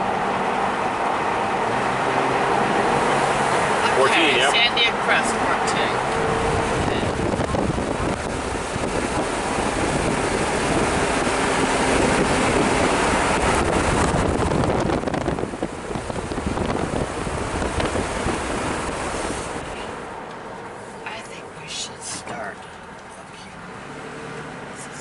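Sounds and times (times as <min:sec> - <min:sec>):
vehicle road noise: 0:00.0 - 0:25.0
wind rushing over microphone: 0:05.9 - 0:20.0.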